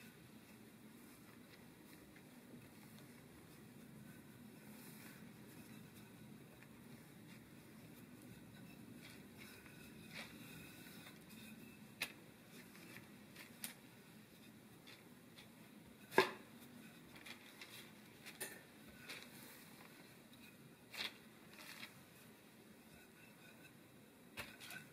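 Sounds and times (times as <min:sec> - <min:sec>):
rolling pin rolling dough: 0:00.0 - 0:24.9.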